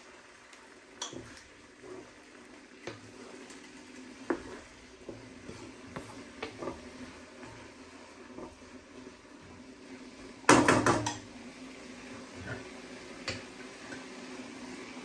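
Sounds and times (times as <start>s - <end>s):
wooden spoon scraping pan: 1.0s - 9.1s.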